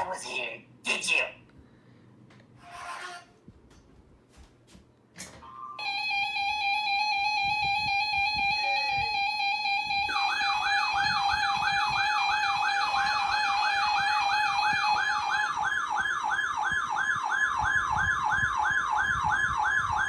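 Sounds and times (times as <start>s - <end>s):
steady held tone: 5.4s - 15.6s
electronic wailing siren: 5.4s - 20.0s.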